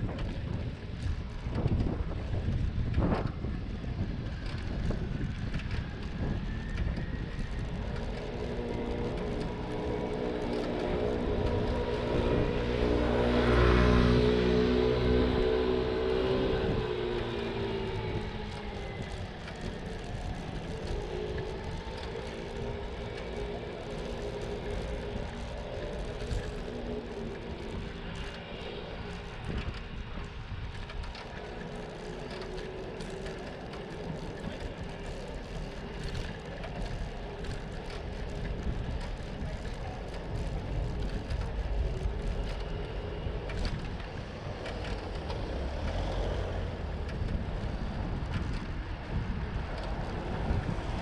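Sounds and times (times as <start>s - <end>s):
bike clicks and rattles: 0.0s - 51.0s
tyres on road: 0.0s - 51.0s
wind rumble: 0.0s - 51.0s.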